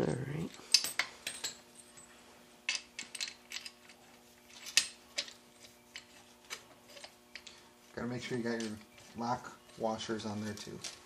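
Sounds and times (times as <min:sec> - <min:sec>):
faint steady hum: 0:00.0 - 0:11.0
metal parts clinking: 0:02.7 - 0:07.6, 0:08.2 - 0:11.0.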